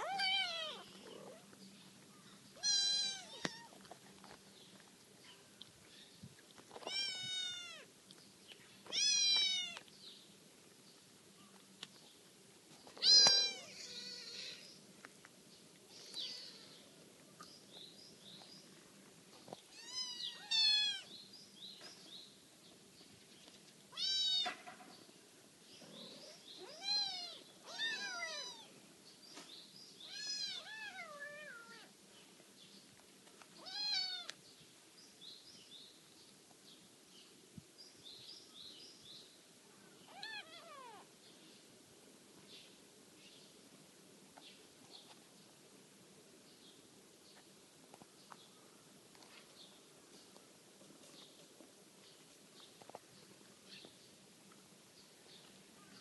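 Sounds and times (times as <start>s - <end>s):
kittens mewing: 13.0s - 14.6s.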